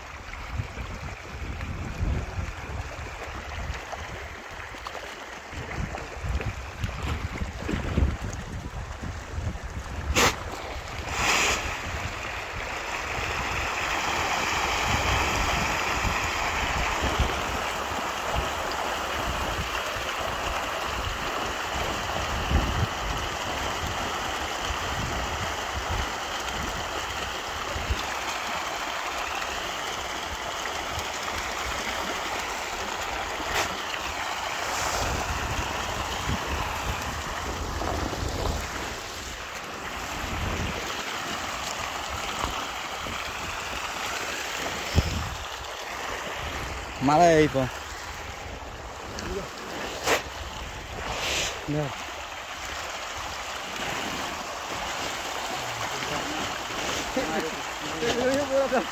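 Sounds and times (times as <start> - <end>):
fish splashing at surface: 10.0 - 21.1, 26.7 - 47.0, 47.7 - 58.9.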